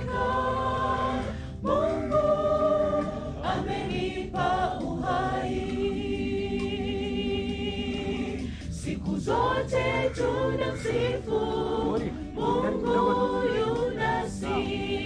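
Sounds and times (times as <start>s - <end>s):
mixed choir singing a hymn: 0.0s - 15.0s.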